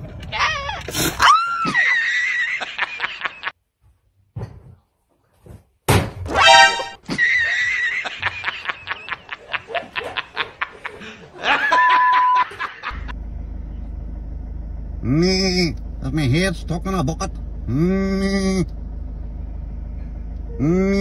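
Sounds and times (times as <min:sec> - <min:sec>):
people laughing: 0:01.7 - 0:03.5, 0:07.0 - 0:13.1
steady low hum: 0:12.8 - 0:21.0.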